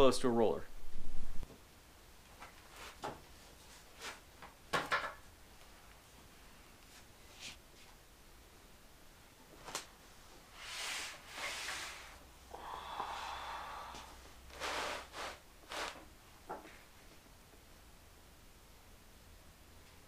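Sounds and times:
parts rubbing and scraping: 14.5s - 16.1s.

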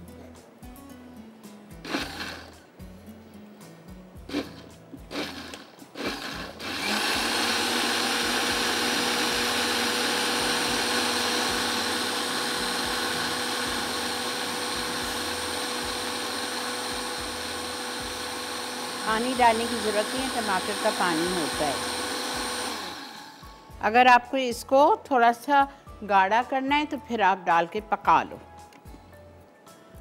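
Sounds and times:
electric blender running: 1.8s - 2.6s, 4.3s - 23.4s.

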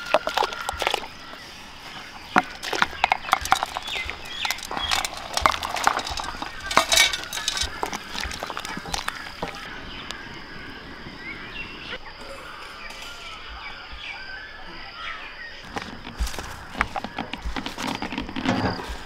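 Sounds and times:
water splashing: 0.0s - 9.7s
food scraped off steel plates: 3.0s - 9.2s.

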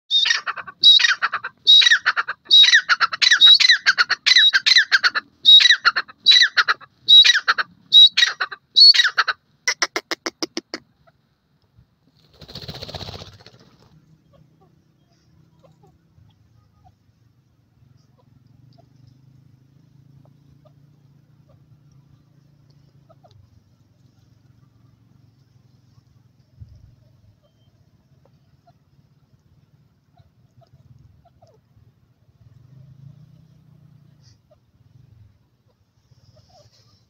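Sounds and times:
francolin calling: 0.1s - 10.2s.

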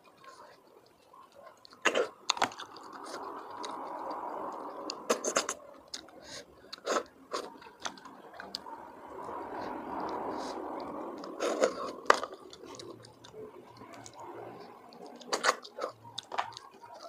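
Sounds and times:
chewing: 0.0s - 17.0s
snail shells clicking: 0.1s - 8.6s
sucking and slurping from shells: 0.2s - 17.0s.

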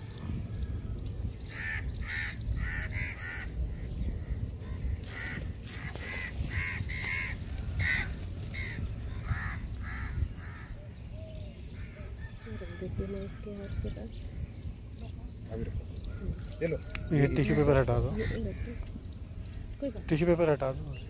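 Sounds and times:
low rumble: 0.0s - 21.0s
bird cawing: 1.4s - 11.1s, 16.1s - 20.3s.

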